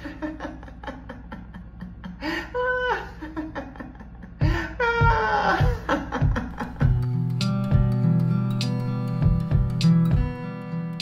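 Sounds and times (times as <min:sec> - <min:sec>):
person laughing heartily: 0:00.0 - 0:07.3.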